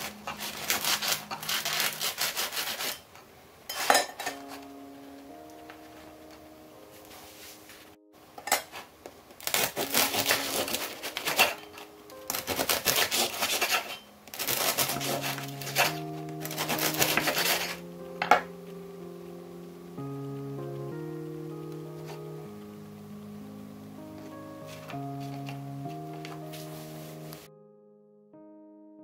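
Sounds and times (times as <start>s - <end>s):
bread knife sawing crusty bread: 0.0s - 3.0s, 9.4s - 17.8s
soft background music: 0.0s - 3.1s, 3.7s - 29.0s.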